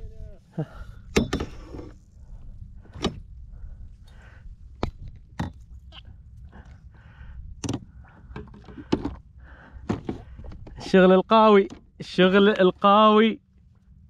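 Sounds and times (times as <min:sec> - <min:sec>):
steady low rumble: 0:00.0 - 0:14.0
sharp knocks and thuds: 0:09.8 - 0:10.8.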